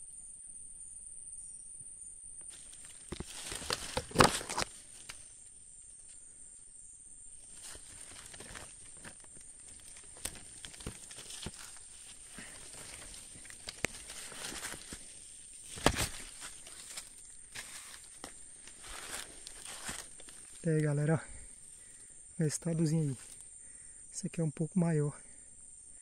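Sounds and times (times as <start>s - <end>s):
crackles of leaves and twigs: 2.4s - 6.4s, 7.3s - 23.8s
footsteps in dry leaves: 2.5s - 5.2s, 7.4s - 20.6s.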